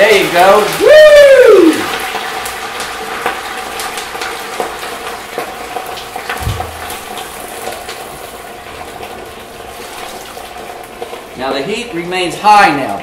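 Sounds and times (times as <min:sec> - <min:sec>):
greens sizzling in hot oil: 0:00.0 - 0:13.0
low thump: 0:06.4 - 0:07.1.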